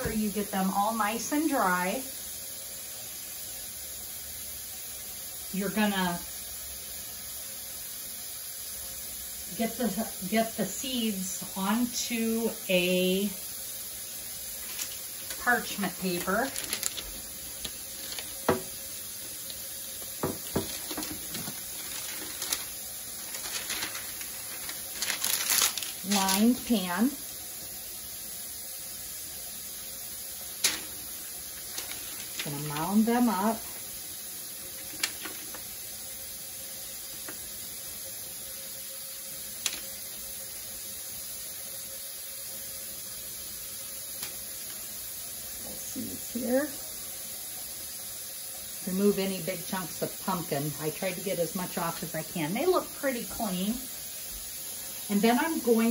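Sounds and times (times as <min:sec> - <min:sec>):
steady hiss: 0:00.0 - 0:55.9
paper and cloth rustling: 0:14.6 - 0:18.5, 0:20.4 - 0:26.6, 0:31.6 - 0:33.3.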